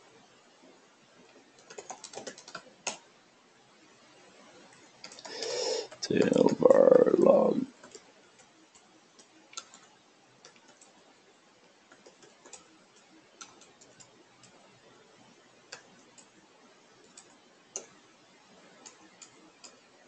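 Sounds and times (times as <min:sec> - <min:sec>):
computer keyboard keystrokes: 0:01.6 - 0:03.1, 0:07.8 - 0:11.0, 0:11.9 - 0:14.6, 0:15.7 - 0:16.4, 0:17.0 - 0:17.9, 0:18.7 - 0:19.8.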